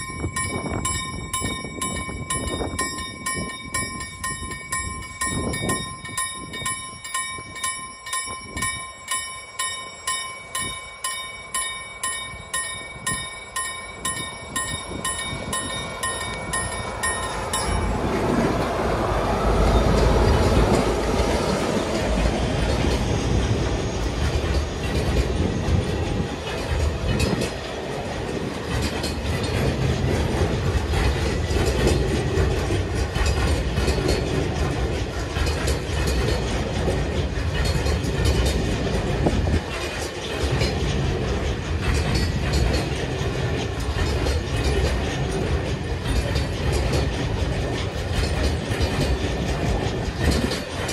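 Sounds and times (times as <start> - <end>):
level crossing warning bell: 0.0 - 27.7
diesel locomotive engines: 0.0 - 50.9
train wagons rolling: 0.0 - 50.9.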